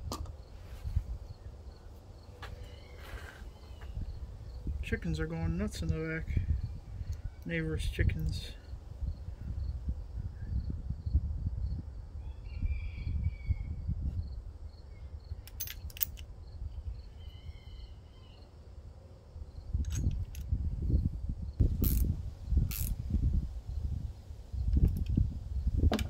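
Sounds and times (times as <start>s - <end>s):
insect chirping faintly: 13.9s - 25.9s.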